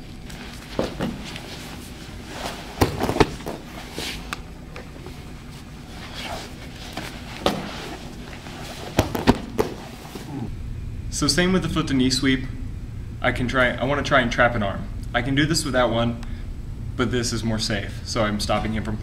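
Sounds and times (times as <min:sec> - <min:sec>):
bodies thumping on mats: 0:00.4 - 0:04.2, 0:05.8 - 0:10.4.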